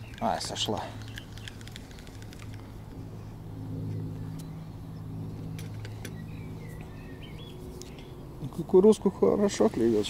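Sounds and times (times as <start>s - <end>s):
light clicks: 0.0s - 2.7s
low engine-like hum: 0.0s - 10.0s.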